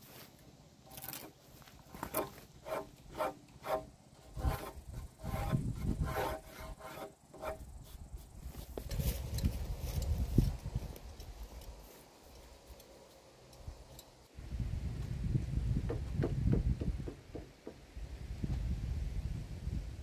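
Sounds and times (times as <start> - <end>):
hand tool rasping against timber: 1.9 - 8.1.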